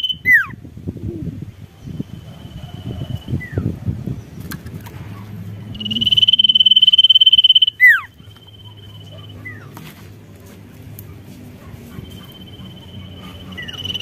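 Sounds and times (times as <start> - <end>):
songbird whistling: 0.0 - 0.6, 5.7 - 9.6, 12.0 - 14.0.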